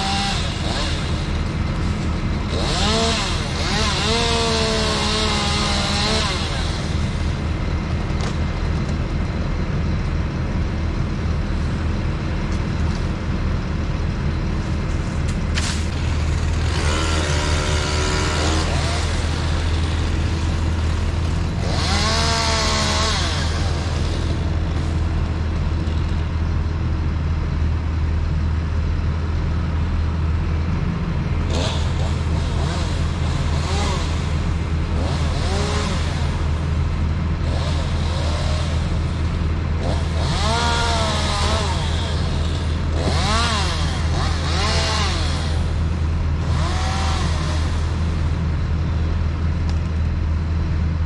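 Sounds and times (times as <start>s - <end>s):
chainsaw revving and cutting: 0.0s - 7.5s, 15.9s - 25.0s, 31.5s - 36.8s, 37.4s - 48.3s
truck engine running: 0.0s - 51.0s.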